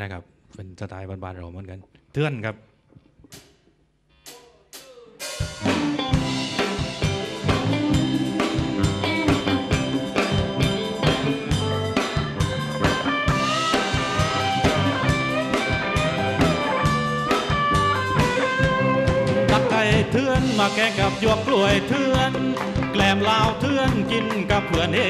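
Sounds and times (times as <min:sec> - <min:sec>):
rock band playing: 0:05.2 - 0:25.0
lead guitar melody with bending notes: 0:05.6 - 0:25.0.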